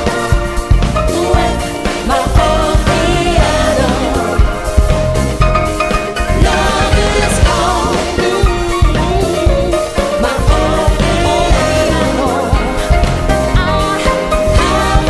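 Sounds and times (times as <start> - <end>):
soul disco pop band: 0.0 - 15.0
woman singing: 6.4 - 15.0.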